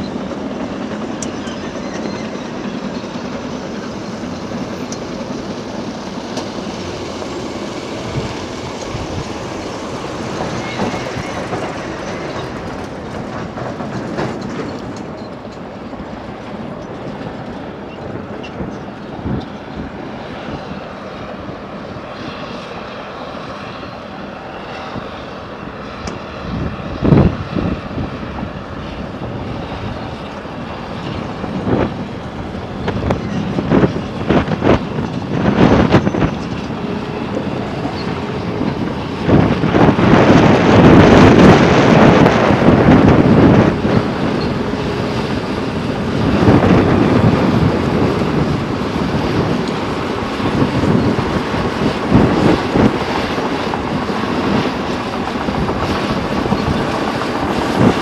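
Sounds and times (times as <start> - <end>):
clatter of tracks: 0.0 - 58.0
bulldozer engine running: 28.4 - 58.0.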